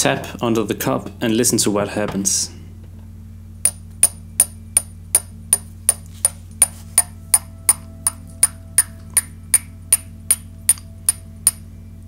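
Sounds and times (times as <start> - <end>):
teaspoon tapping ceramic mug: 3.7 - 11.6
faint ringing tone: 6.6 - 12.0.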